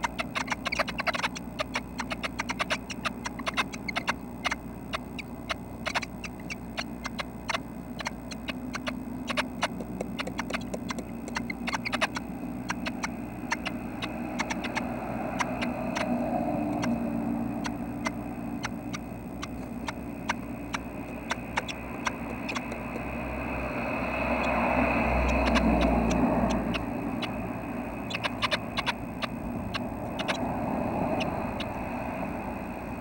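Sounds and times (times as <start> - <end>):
nestlings tapping and scratching: 0.0 - 16.1, 18.0 - 23.2
steady low hum: 0.0 - 33.0.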